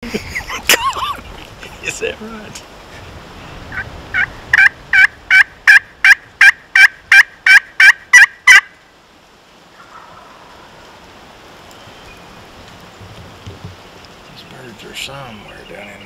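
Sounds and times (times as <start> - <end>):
turkey yelps: 4.2 - 8.7, 9.7 - 10.9.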